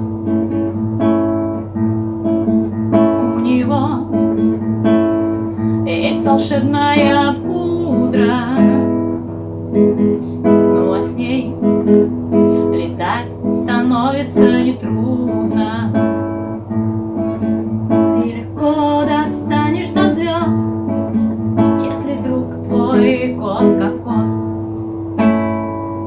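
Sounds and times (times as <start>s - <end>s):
acoustic guitar strumming: 0.0s - 26.0s
woman singing: 3.0s - 4.5s, 5.8s - 9.2s, 10.6s - 11.7s, 12.6s - 16.2s, 18.1s - 20.8s, 21.6s - 24.6s.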